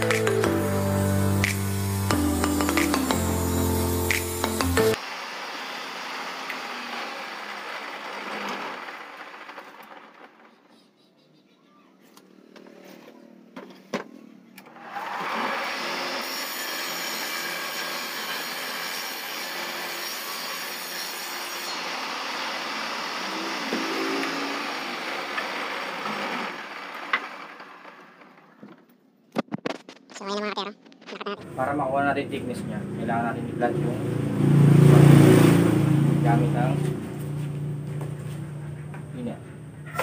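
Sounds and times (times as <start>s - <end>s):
table saw motor running: 0.0s - 10.1s.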